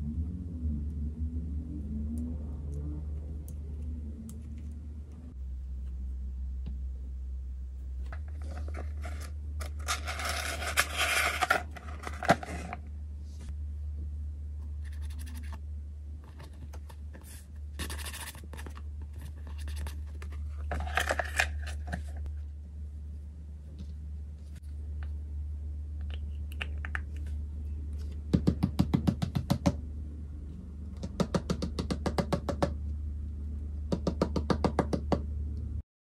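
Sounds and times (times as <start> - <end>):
plastic box and paper rustling: 8.1 - 12.8, 16.3 - 22.3.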